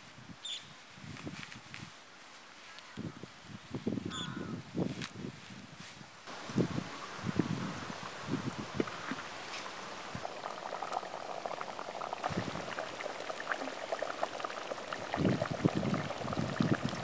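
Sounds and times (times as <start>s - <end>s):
curry bubbling in a pot: 6.3s - 17.0s.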